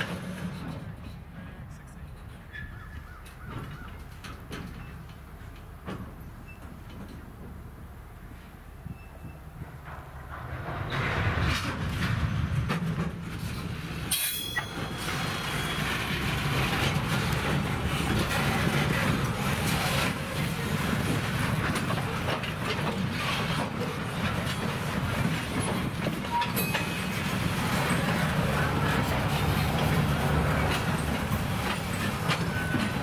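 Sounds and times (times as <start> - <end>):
train wheels clicking over rail joints: 0.0 - 33.0
wheel screech: 14.1 - 33.0.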